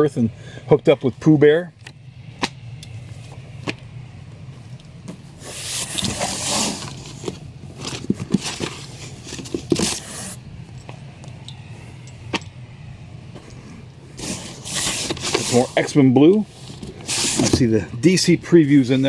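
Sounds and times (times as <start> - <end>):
cardboard box scraping rustle: 5.3 - 10.4, 14.2 - 15.9, 16.5 - 17.7
books knocking and tapping: 7.2 - 10.0.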